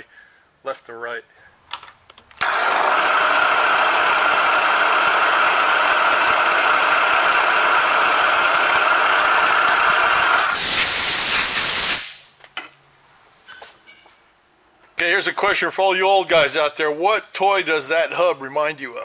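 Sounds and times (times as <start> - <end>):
drill boring into metal: 2.4 - 12.2.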